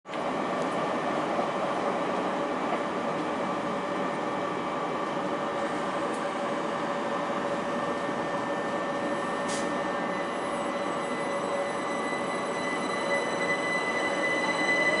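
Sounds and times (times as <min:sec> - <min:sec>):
train equipment hum and whine: 0:00.1 - 0:15.0
brief high hiss: 0:09.5 - 0:09.8.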